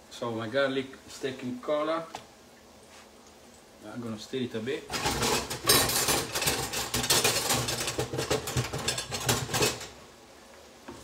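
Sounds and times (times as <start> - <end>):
clattering and scraping: 4.9 - 10.0.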